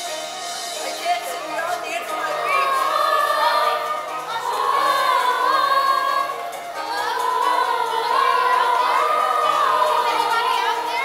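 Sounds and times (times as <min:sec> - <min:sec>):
chorus of young voices singing: 0:01.8 - 0:11.0.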